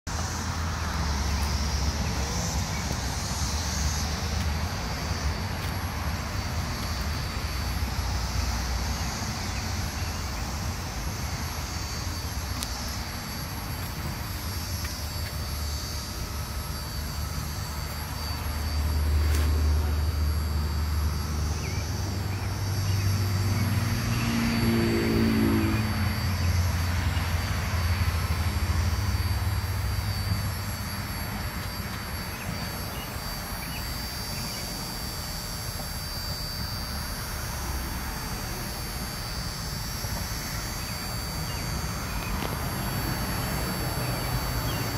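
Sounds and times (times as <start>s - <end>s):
passing vehicle engine rumble: 0.1s - 33.1s
cicadas droning: 0.1s - 44.9s.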